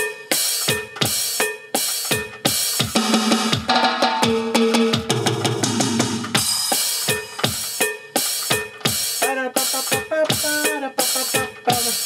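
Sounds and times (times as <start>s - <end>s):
timbales and electronic drums beat: 0.0s - 12.0s
electronic drum pad hits: 2.1s - 9.1s.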